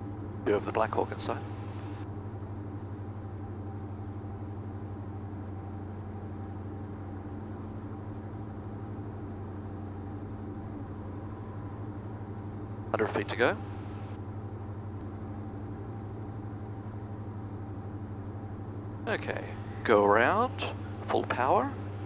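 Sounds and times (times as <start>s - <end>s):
aircraft cabin engine drone: 0.0s - 22.0s.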